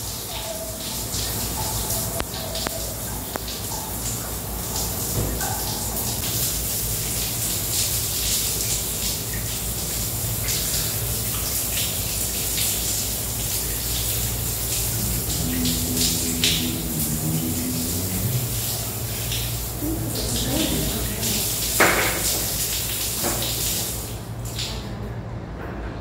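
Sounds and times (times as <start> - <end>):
rushing running water: 0.0 - 24.9
low hum: 14.8 - 21.3.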